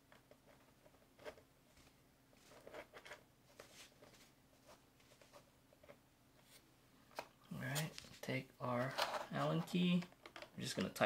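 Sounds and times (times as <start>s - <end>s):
small parts clicking and rustling: 8.7s - 11.0s.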